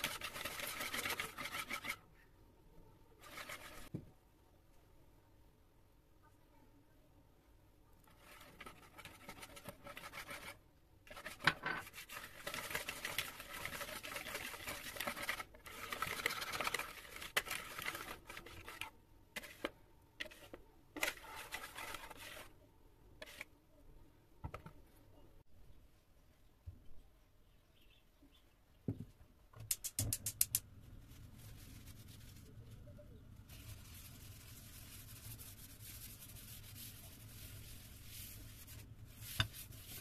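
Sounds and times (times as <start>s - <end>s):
whisk beating batter in bowl: 0.0s - 2.0s, 3.2s - 3.9s, 8.1s - 22.5s.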